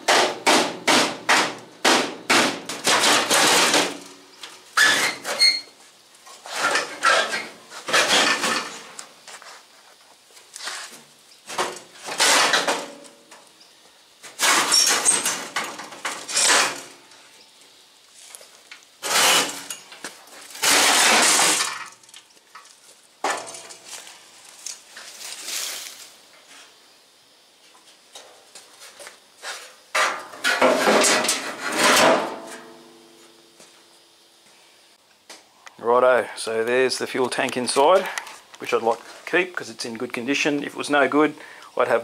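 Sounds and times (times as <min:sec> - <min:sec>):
sheet metal clanging and scraping: 0:00.0 - 0:04.2, 0:06.3 - 0:08.9, 0:11.5 - 0:13.2, 0:14.3 - 0:17.0, 0:19.0 - 0:22.0, 0:30.0 - 0:32.8.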